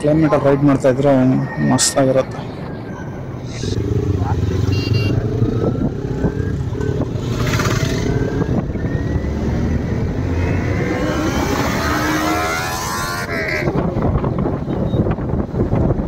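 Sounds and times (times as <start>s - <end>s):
rush of riding wind: 0.0s - 16.0s
motorcycle engine revving: 3.4s - 14.2s.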